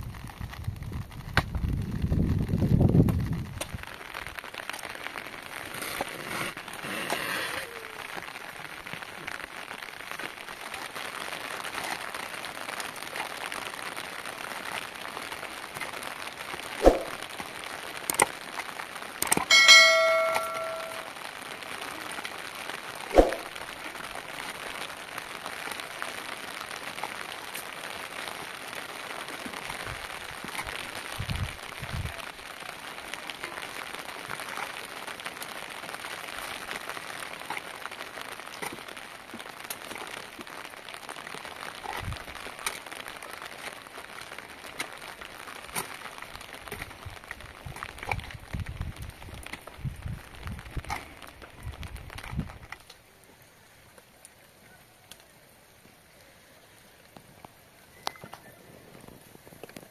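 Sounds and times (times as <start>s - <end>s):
steady rain: 0.0s - 59.9s
metal clang ringing: 19.5s - 21.1s.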